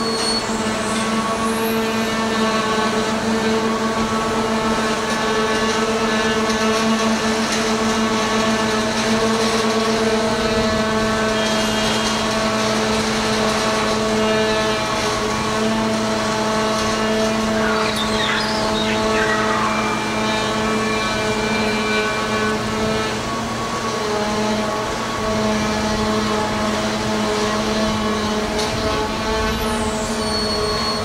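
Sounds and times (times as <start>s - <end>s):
diesel engine running: 0.0s - 31.0s
high wavering sound: 16.4s - 22.7s.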